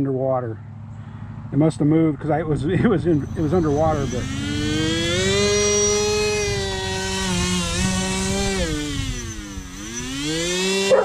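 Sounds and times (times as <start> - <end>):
electric motor propeller whine: 2.4 - 11.0.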